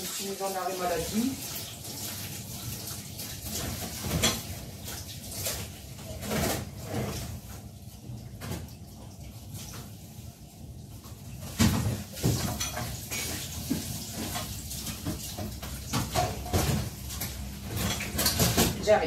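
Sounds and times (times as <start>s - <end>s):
kitchen items knocking and clattering: 3.4s - 8.8s, 11.1s - 19.0s.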